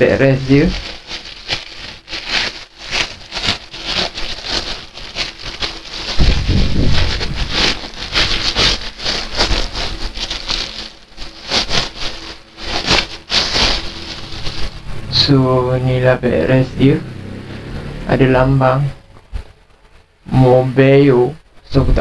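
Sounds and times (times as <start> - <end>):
plastic bag crinkling: 0.0 - 20.9
low handling rumble: 5.0 - 11.5, 12.2 - 20.5.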